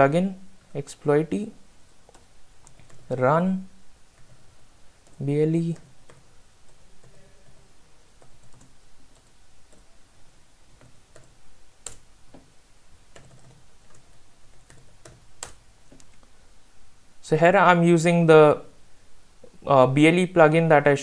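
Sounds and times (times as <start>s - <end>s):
typing on computer keyboard: 4.1s - 9.9s, 10.7s - 12.5s, 13.1s - 16.2s.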